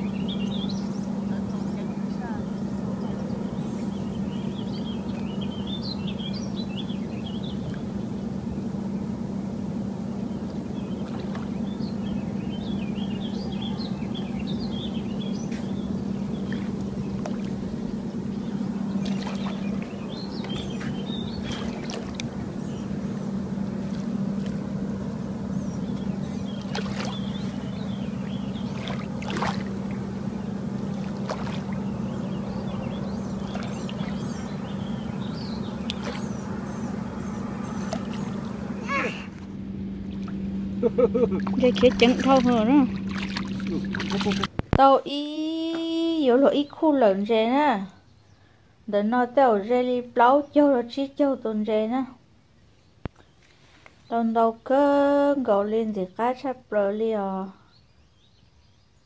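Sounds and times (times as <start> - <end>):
low motor hum: 0.0 - 58.9.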